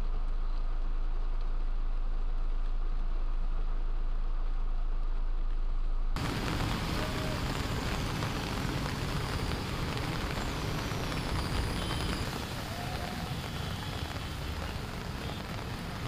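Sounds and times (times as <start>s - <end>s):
cars driving through floodwater: 6.2s - 16.0s
heavy rain: 6.2s - 16.0s.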